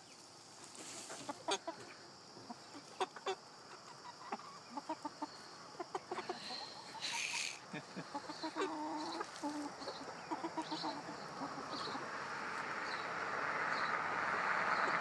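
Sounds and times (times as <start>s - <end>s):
hens clucking: 0.6s - 12.8s.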